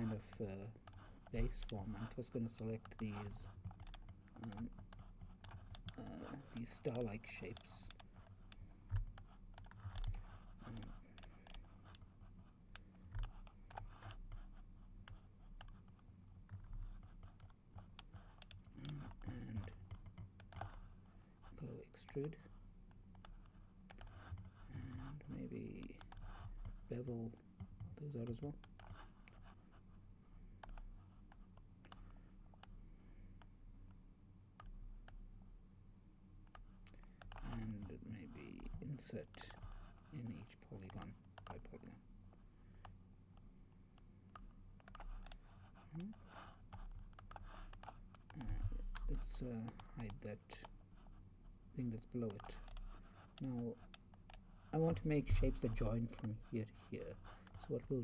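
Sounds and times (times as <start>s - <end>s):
low room hum: 0.0s - 58.0s
computer mouse clicks: 2.5s - 6.0s, 6.6s - 12.1s, 12.7s - 20.8s, 22.0s - 24.6s, 25.7s - 26.8s, 27.6s - 29.6s, 30.6s - 32.8s, 36.4s - 37.9s, 38.6s - 39.9s, 40.8s - 41.7s, 42.8s - 50.8s, 52.1s - 56.5s
mouse and keyboard clicking: 2.6s - 6.0s, 46.7s - 50.7s.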